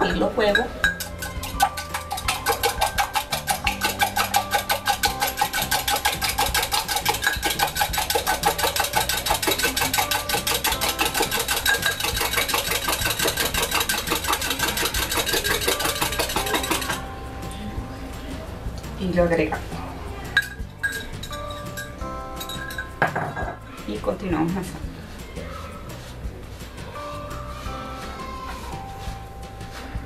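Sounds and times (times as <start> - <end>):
fork whisking eggs in a cup: 0.3 - 17.0.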